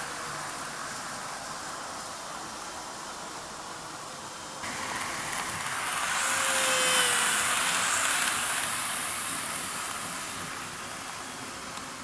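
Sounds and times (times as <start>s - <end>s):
faint motor whine: 0.0s - 12.0s
model train wheels rattling on rail: 4.6s - 12.0s.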